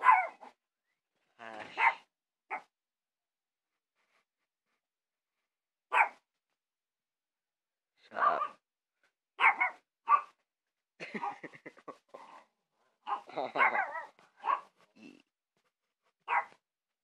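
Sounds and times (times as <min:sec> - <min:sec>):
small dogs barking: 0:00.0 - 0:00.5, 0:01.5 - 0:02.7, 0:05.9 - 0:06.2, 0:08.1 - 0:08.6, 0:09.4 - 0:10.4, 0:13.0 - 0:14.8, 0:16.2 - 0:16.6.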